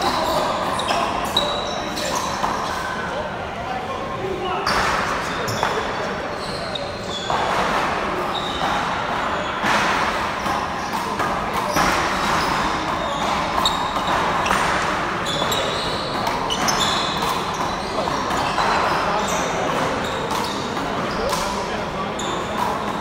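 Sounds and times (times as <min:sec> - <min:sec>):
handball hitting wall and floor: 0:07.2 - 0:18.9.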